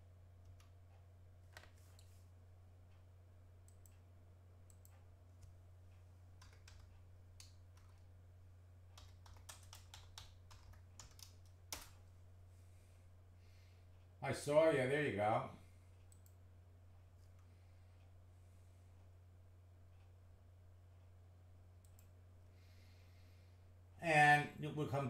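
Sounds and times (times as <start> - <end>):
low steady hum: 0.0 - 25.0
computer keyboard typing: 6.4 - 8.1, 9.0 - 12.0.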